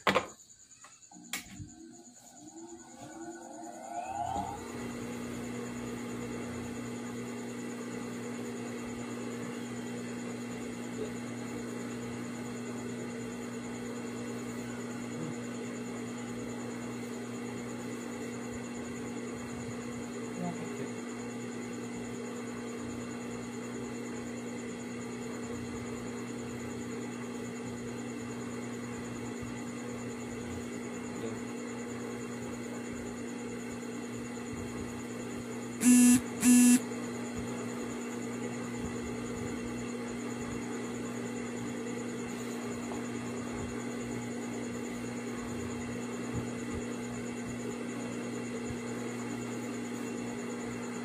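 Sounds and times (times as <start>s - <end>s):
electrical hum: 0.0s - 51.0s
short loud beeps: 35.8s - 36.8s.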